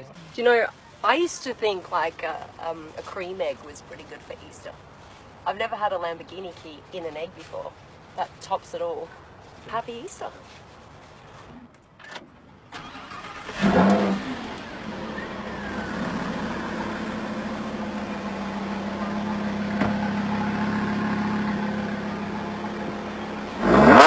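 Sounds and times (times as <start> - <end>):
sports car engine starting and idling: 12.0 - 24.0.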